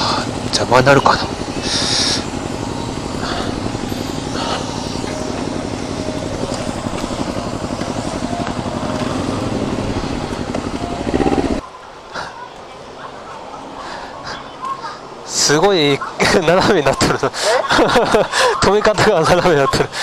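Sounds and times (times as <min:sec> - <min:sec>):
motorcycle engine running: 0:00.0 - 0:11.6.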